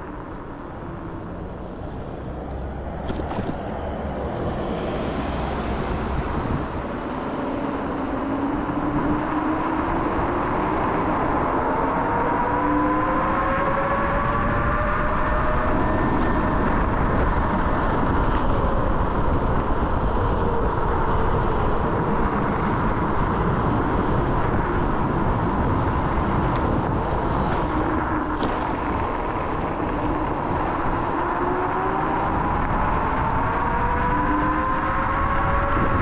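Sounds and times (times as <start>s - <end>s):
electric scooter motor whine: 7.6s - 36.0s.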